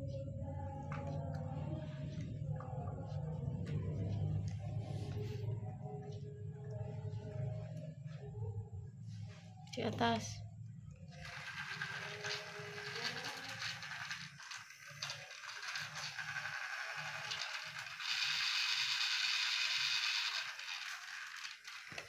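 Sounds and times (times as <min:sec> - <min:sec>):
toy train motor whirring and grinding: 0:11.2 - 0:22.0.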